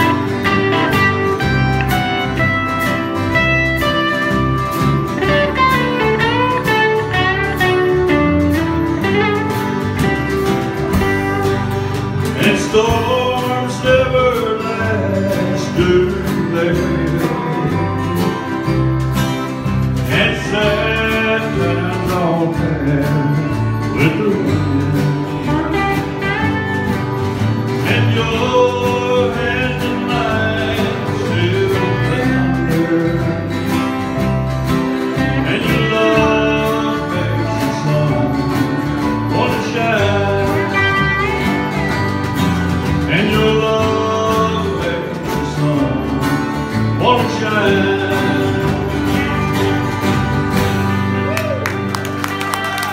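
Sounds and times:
acoustic guitar: 0:00.0 - 0:52.9.

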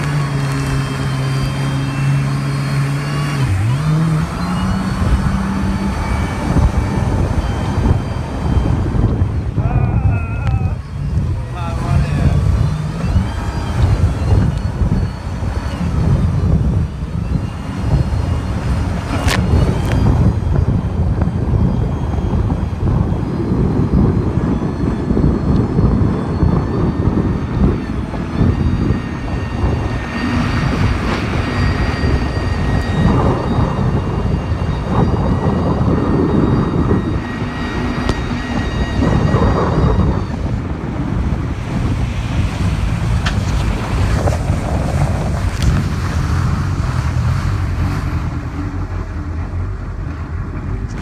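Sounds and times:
jet ski engine whine: 0:00.0 - 0:51.0
jet ski over choppy water: 0:00.0 - 0:51.0
wind rumble on microphone: 0:00.0 - 0:51.0.

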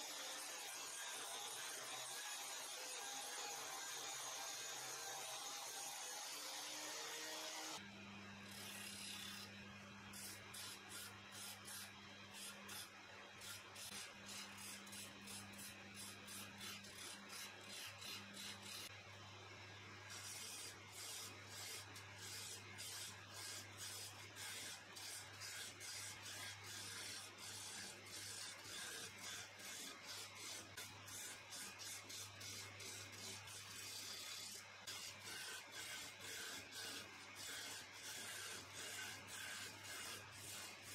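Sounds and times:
hand file rasping on wood: 0:10.1 - 0:18.9, 0:20.1 - 0:40.9.

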